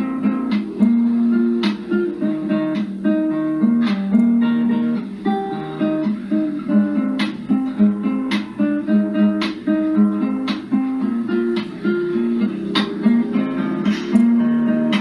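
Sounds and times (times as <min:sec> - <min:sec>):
acoustic guitar plucked melody: 0:00.0 - 0:15.0.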